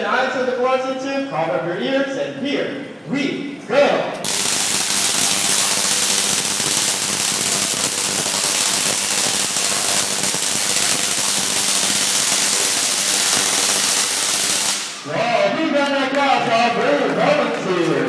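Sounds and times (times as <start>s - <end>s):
steady electrical buzz: 1.6s - 15.2s
tesla coil arcs crackling: 4.2s - 15.1s.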